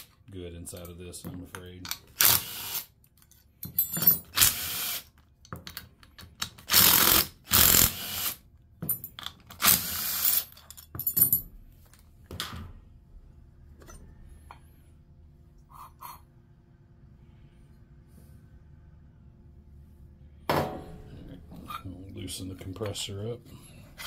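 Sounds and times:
cordless impact tool bursts: 2.1 - 2.9, 4.3 - 5.1, 6.7 - 8.4, 9.6 - 10.4
metal parts clinking: 3.1 - 4.4, 10.2 - 12.0.

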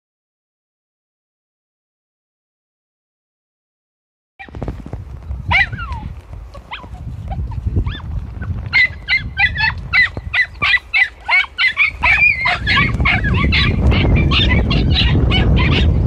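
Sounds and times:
low rumbling noise: 4.4 - 16.0
hounds yelping: 5.5 - 16.0.

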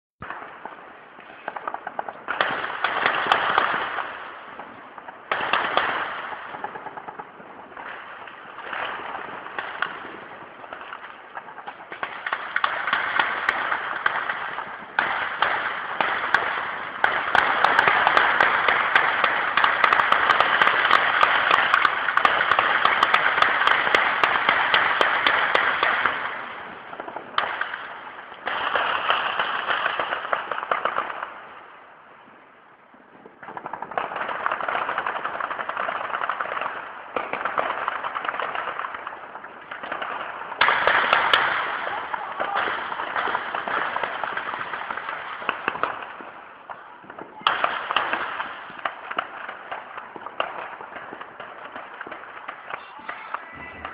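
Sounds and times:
automatic gunfire: 12.0 - 26.4.

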